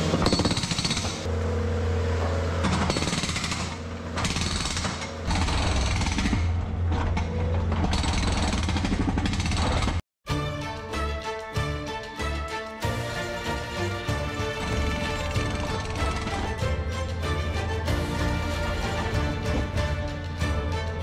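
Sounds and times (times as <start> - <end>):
breaker hammer pounding concrete: 0.0 - 1.3, 2.6 - 6.9, 7.8 - 10.0, 14.2 - 16.9
engine running: 0.0 - 10.0, 10.9 - 21.0.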